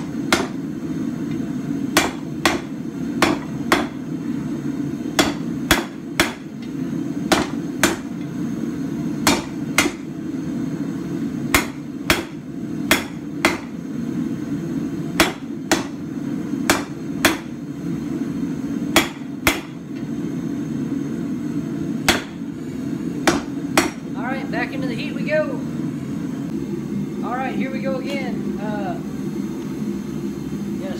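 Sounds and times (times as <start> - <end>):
hammer striking hot metal on anvil: 0.0 - 4.1, 5.1 - 8.4, 9.2 - 10.1, 11.4 - 13.8, 15.1 - 16.0, 16.6 - 17.6, 18.9 - 20.1, 22.0 - 22.5, 23.2 - 24.1
steady low hum: 0.0 - 30.9.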